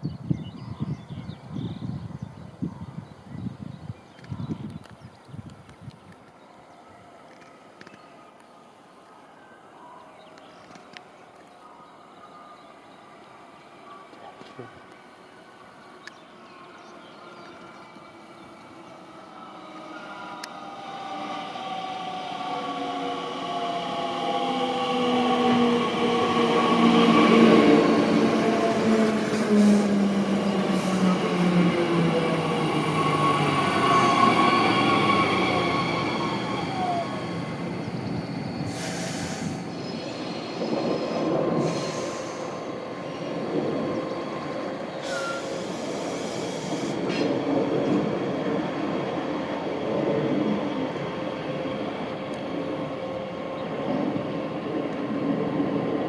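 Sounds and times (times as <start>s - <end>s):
traction electrics whine: 12.9s - 56.0s
electric train braking: 19.6s - 40.6s, 45.0s - 47.4s
short air hisses: 38.7s - 39.7s, 41.6s - 42.7s, 45.0s - 47.1s.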